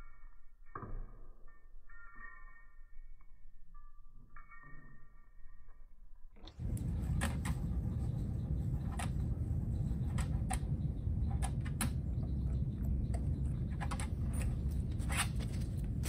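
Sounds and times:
low outdoor rumble: 5.8 - 16.0.

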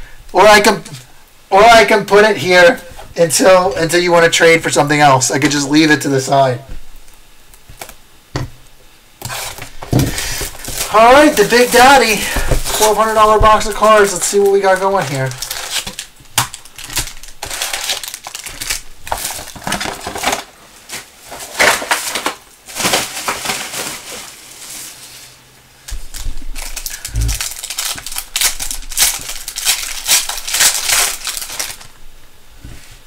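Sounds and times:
plastic wrapping tearing and crinkling: 9.2 - 32.0.

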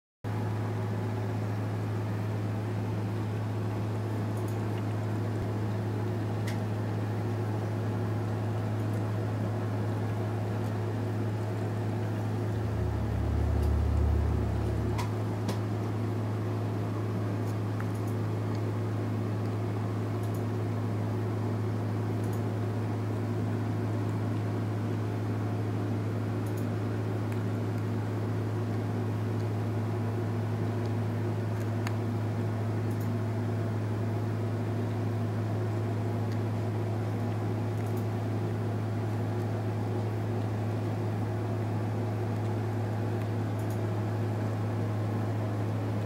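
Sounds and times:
low hum with hiss: 0.3 - 46.0
deep rumble: 12.4 - 15.4.

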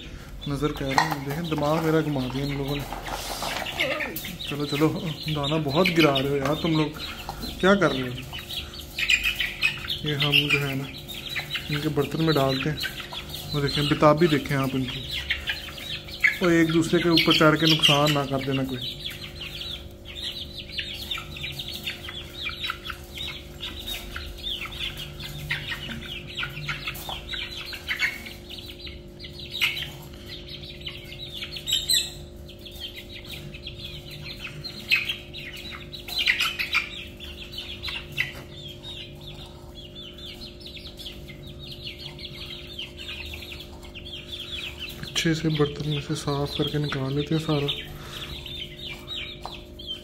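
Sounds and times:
chicks peeping: 0.0 - 50.0
faint steady hum: 0.0 - 50.0.

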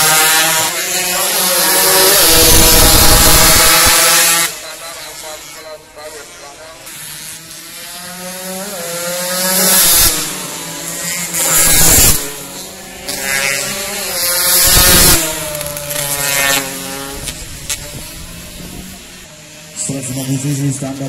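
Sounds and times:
racing motorcycles passing by: 0.0 - 21.0.

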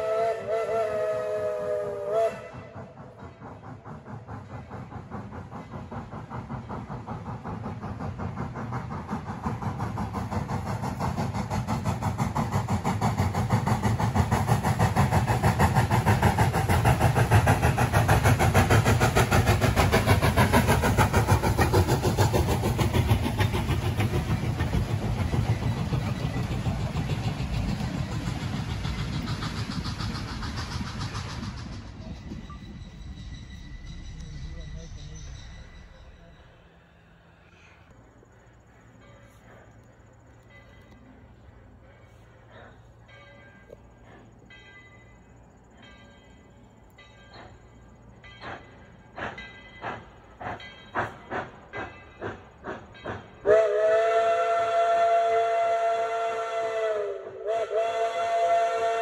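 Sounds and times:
steam locomotive whistle: 0.0 - 3.2, 53.4 - 59.0
train passing rhythmic running: 0.0 - 59.0.

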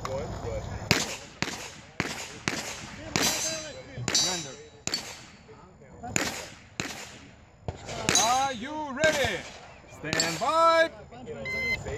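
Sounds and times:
pistol shots echoing: 0.9 - 5.4, 6.2 - 7.3, 7.9 - 10.6.

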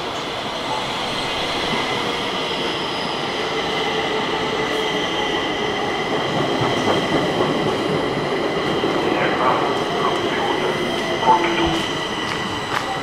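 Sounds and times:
high-pitched train whine: 0.0 - 13.0
metro train rumbling past: 0.0 - 13.0.

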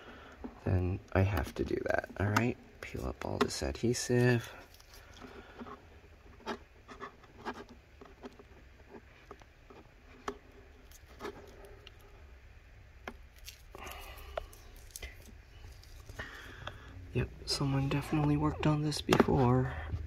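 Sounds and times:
faint scratching: 2.8 - 12.3, 13.4 - 16.5.

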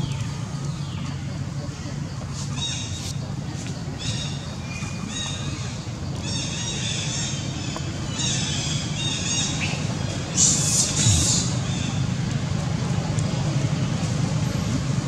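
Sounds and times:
low rumble: 10.9 - 11.8.

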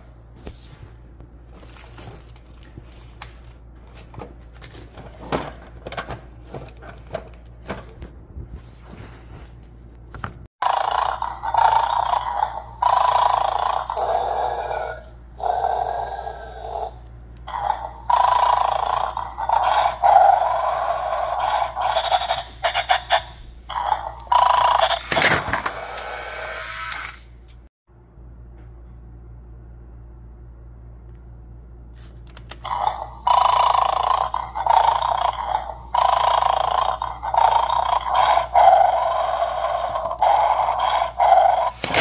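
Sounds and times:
toy dog snoring and growling: 10.6 - 27.2, 32.6 - 42.0
loud sharp toy sound: 17.5 - 27.3, 32.7 - 42.0.

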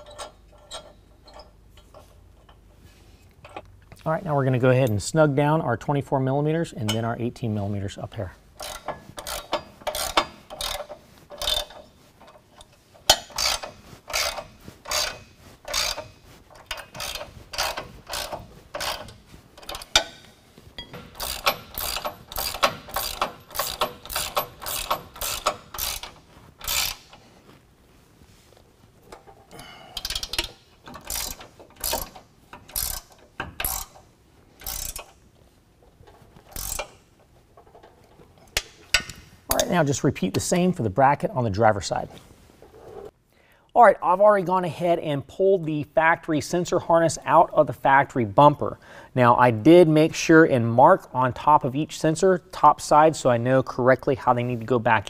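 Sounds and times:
ratchet clicking: 8.6 - 12.4, 13.1 - 20.2, 20.8 - 27.2, 30.0 - 34.0, 34.6 - 35.2, 36.5 - 37.0.

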